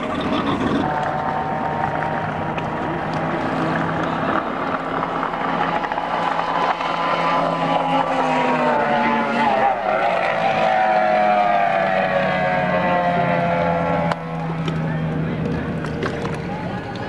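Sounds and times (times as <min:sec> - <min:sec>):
low steady engine note: 0:00.0 - 0:17.0
race boat engine whine: 0:00.0 - 0:17.0.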